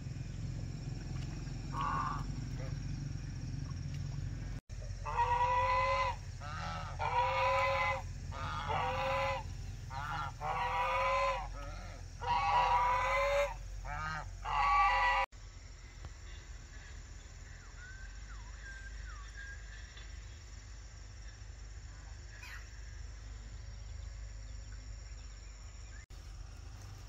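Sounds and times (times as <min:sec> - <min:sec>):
low hum: 0:00.0 - 0:27.0
poultry calling: 0:01.2 - 0:02.8, 0:04.8 - 0:15.3.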